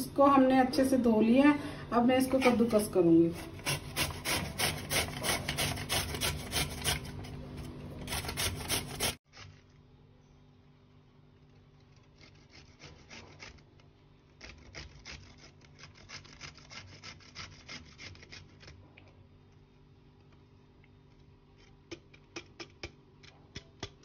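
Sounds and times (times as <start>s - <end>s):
rasping strokes on a grater: 2.3s - 7.3s, 8.0s - 9.6s, 11.8s - 13.7s, 14.3s - 18.9s.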